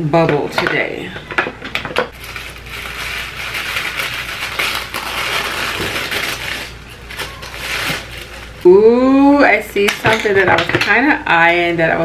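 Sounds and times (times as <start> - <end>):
bubble wrap crackling: 2.1 - 9.2.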